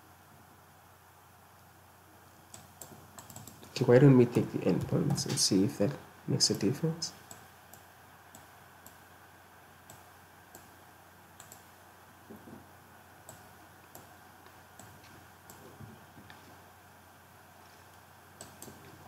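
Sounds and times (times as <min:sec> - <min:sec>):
low electrical hum: 0:00.0 - 0:19.0
computer mouse clicking: 0:02.5 - 0:03.8, 0:07.2 - 0:09.0, 0:09.8 - 0:10.7, 0:11.4 - 0:11.7, 0:13.2 - 0:14.1, 0:14.8 - 0:15.6, 0:18.4 - 0:19.0.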